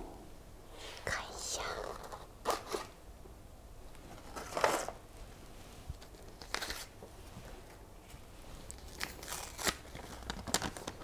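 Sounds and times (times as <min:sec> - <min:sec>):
paper and card rustling: 0:06.0 - 0:06.9.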